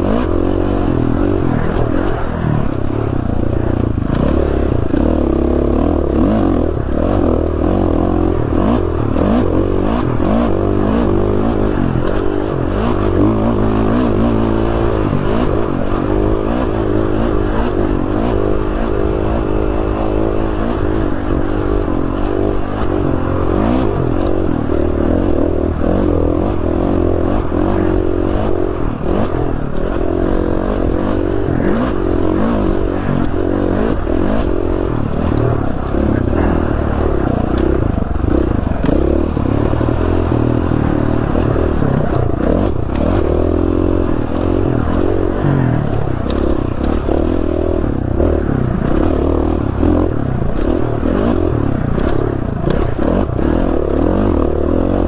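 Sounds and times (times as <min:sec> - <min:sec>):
dirt bike engine revving: 0:00.0 - 0:55.0.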